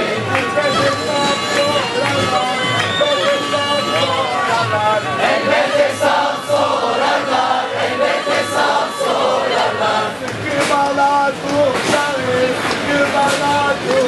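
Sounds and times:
crowd singing along: 0:00.0 - 0:14.0
bagpipe playing dance tune: 0:00.5 - 0:09.3.

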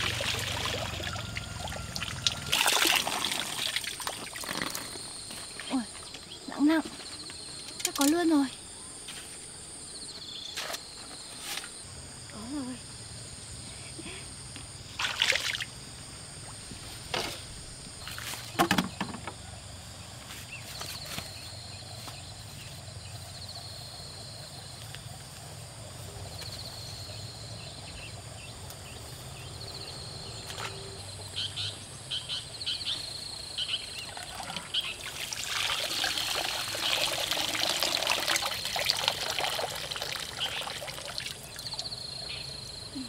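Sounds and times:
water splashing and sloshing: 0:00.0 - 0:08.0, 0:14.8 - 0:19.2, 0:33.9 - 0:42.0
insects trilling: 0:00.0 - 0:43.0.

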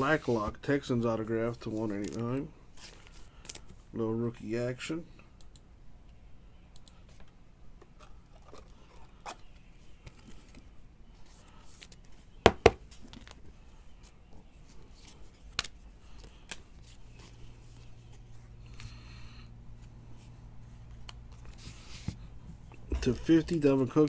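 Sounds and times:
trading cards sliding and rustling: 0:00.0 - 0:00.6, 0:07.9 - 0:22.4.

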